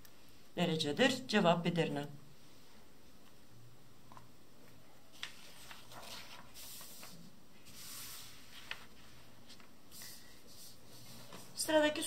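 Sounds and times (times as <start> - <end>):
paper rustling: 5.1 - 11.7.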